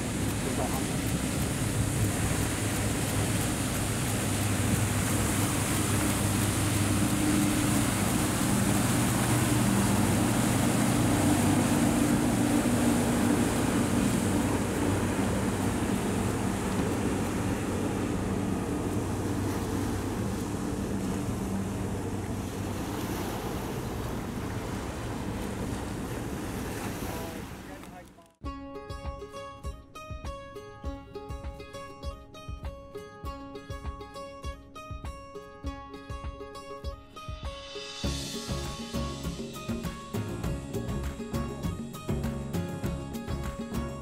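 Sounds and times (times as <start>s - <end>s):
wind on microphone: 0.0s - 27.7s
rushing water: 0.0s - 28.2s, 37.2s - 44.0s
motorboat engine humming: 0.0s - 28.4s, 37.9s - 44.0s.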